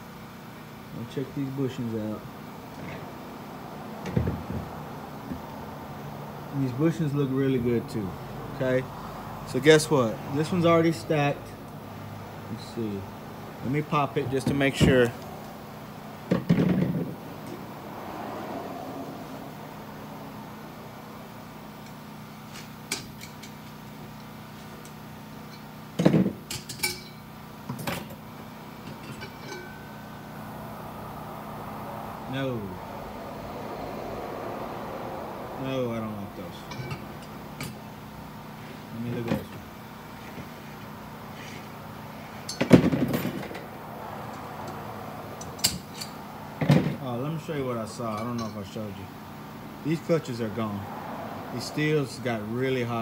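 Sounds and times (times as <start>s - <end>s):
steady low hum: 0.0s - 53.0s
metallic clank with ringing: 26.5s - 28.2s, 28.8s - 30.1s, 36.6s - 37.8s, 48.1s - 48.8s
light metal clinks: 28.8s - 30.0s.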